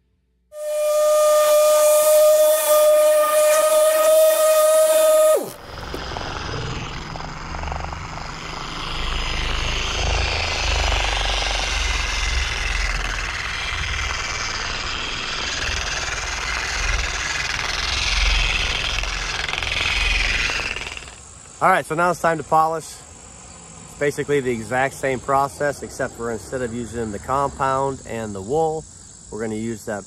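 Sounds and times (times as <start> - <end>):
electric polisher running: 0.6 - 20.6
low rumble: 5.6 - 16.3.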